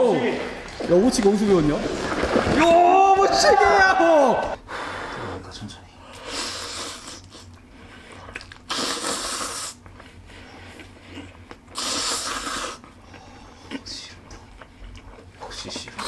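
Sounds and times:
person slurping noodles: 0:06.2 - 0:07.5, 0:08.4 - 0:09.8, 0:11.2 - 0:12.9.

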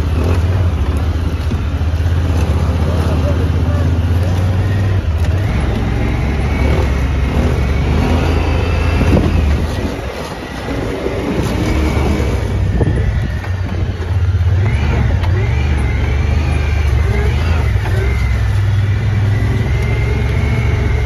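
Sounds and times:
utility vehicle engine rumbling: 0:00.0 - 0:21.0.

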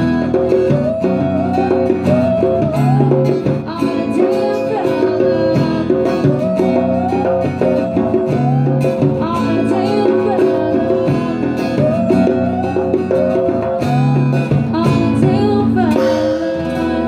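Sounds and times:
acoustic guitar: 0:00.0 - 0:17.0
hand drum: 0:00.0 - 0:17.0
woman singing: 0:00.0 - 0:17.0.

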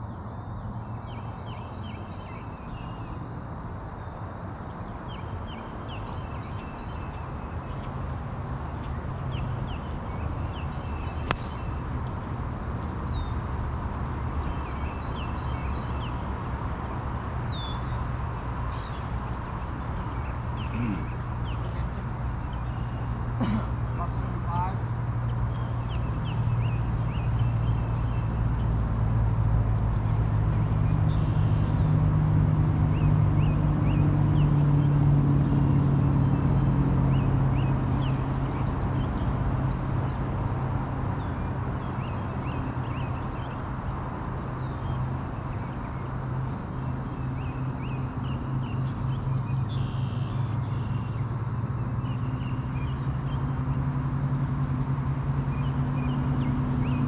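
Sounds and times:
high bird chirps: 0:49.8 - 0:51.1.

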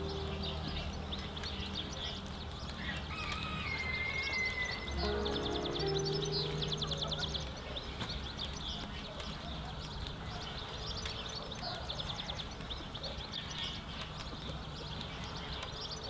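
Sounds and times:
low outdoor rumble: 0:00.0 - 0:11.0
small birds chirping and trilling: 0:00.0 - 0:16.0.

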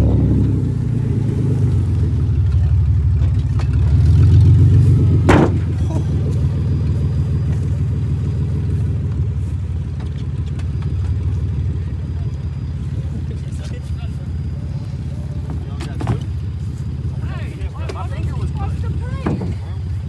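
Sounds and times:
car engine under throttle: 0:00.0 - 0:20.0
sharp bang of car hitting ramp: 0:05.2 - 0:05.8.

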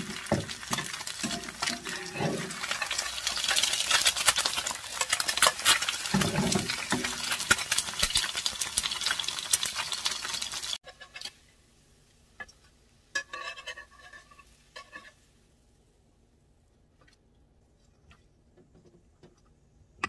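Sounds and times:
metal spatula scraping pan: 0:00.0 - 0:03.8, 0:10.3 - 0:11.4, 0:13.1 - 0:15.2
eggs sizzling in oil: 0:00.0 - 0:15.9.

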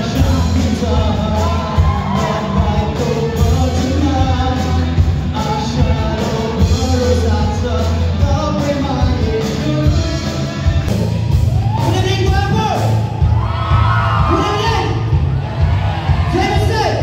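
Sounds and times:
person singing into microphone: 0:00.0 - 0:10.9
drums: 0:00.0 - 0:17.0
live rock band: 0:00.0 - 0:17.0.

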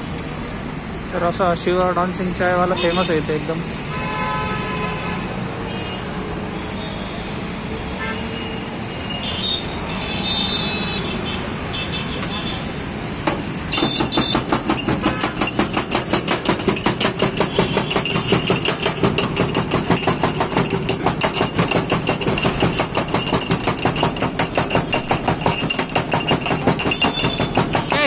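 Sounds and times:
metal pestle pounding in mortar: 0:13.3 - 0:28.0.

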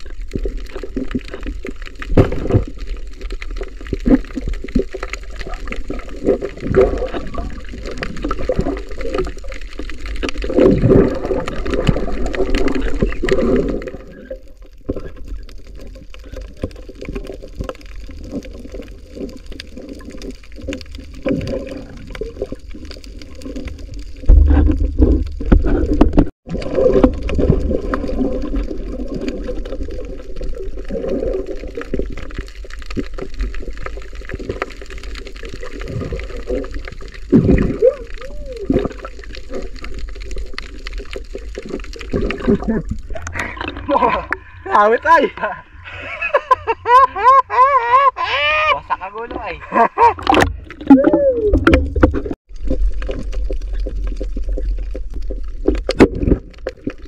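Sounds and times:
underwater clicks and knocks: 0:00.0 - 0:30.1, 0:50.1 - 0:57.0
muffled underwater rumble: 0:00.0 - 0:44.8, 0:48.9 - 0:57.0.

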